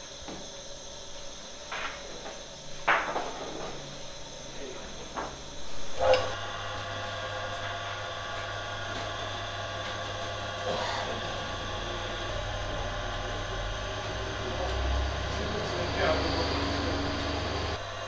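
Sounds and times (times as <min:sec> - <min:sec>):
dough mixer motor humming: 0:05.4 - 0:18.0.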